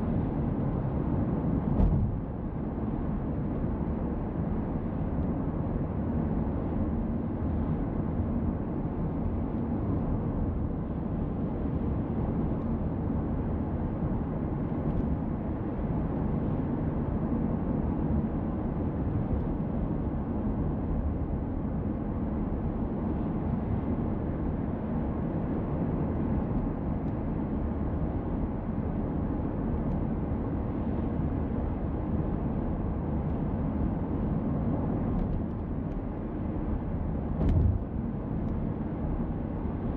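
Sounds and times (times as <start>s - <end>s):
car road noise rumble: 0.0s - 5.1s, 32.5s - 39.9s.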